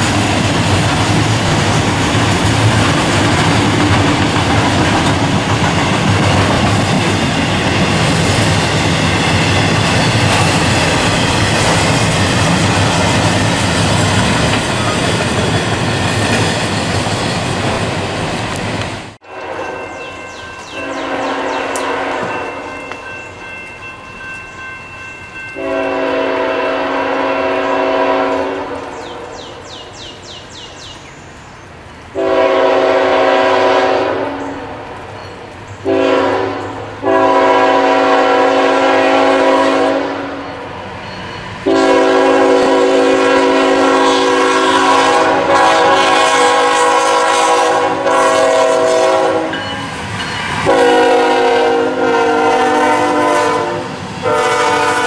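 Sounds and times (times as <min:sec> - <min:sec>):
train rumble: 0:00.0 - 0:55.0
locomotive air horn blasts: 0:19.2 - 0:20.0, 0:20.7 - 0:22.8, 0:25.6 - 0:28.8, 0:32.2 - 0:34.4, 0:35.8 - 0:40.5, 0:41.6 - 0:49.8, 0:50.6 - 0:55.0.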